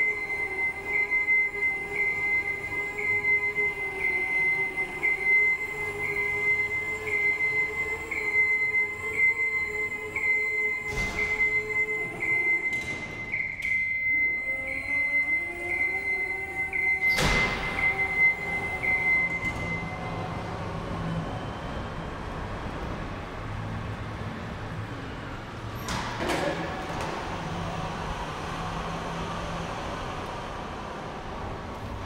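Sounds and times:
motion alarm beeping: 0.0 - 22.0
clunks: 10.8 - 14.8, 16.9 - 19.9.

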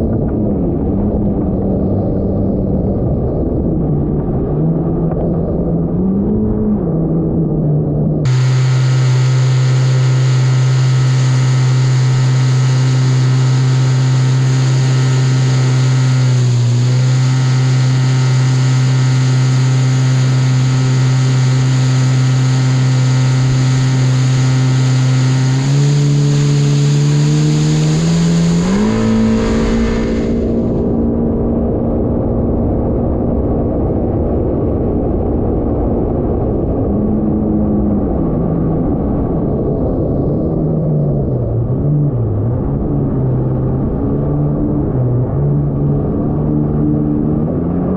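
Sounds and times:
jet ski engine whining: 8.3 - 31.8.

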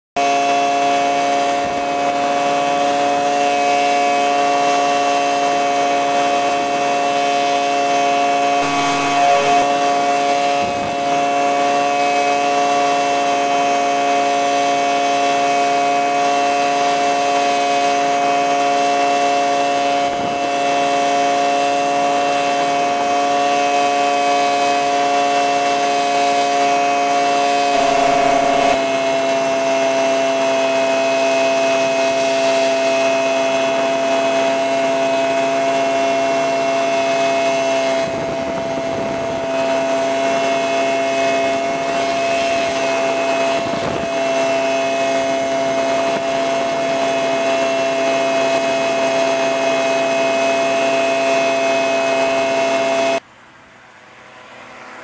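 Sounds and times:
light aircraft engine droning: 0.2 - 55.0.

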